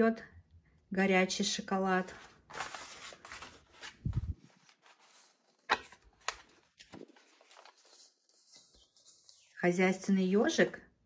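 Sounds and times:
paper pages rustling: 0:02.0 - 0:09.5
crisp paper snaps: 0:05.6 - 0:07.1.

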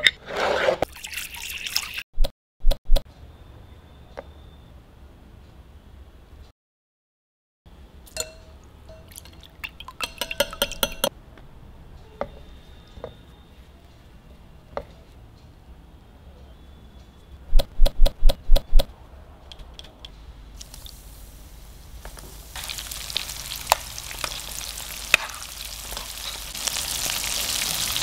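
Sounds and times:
glass dishes and utensils clinking: 0:08.1 - 0:11.1.

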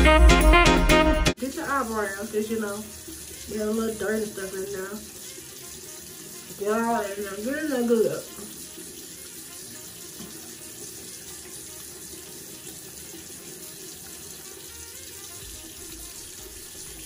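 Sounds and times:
tap running into sink: 0:07.5 - 0:17.0.

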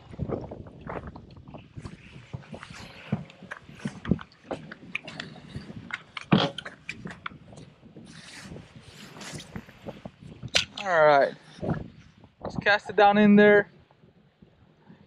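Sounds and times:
fishing rod and reel handled: 0:00.3 - 0:11.9.

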